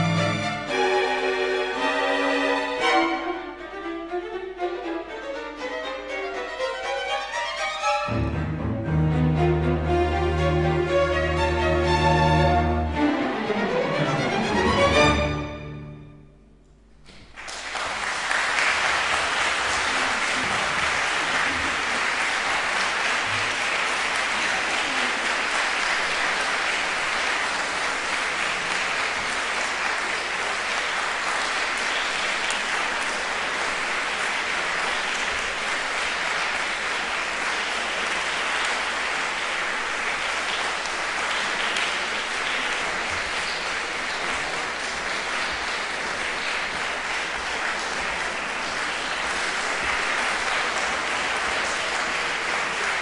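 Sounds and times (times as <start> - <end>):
audience applauding: 17.1 - 53.0.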